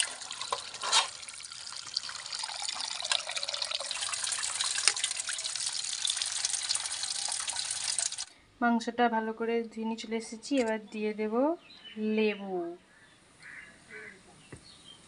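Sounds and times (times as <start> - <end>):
running water into steel bowl: 0.0 - 8.3.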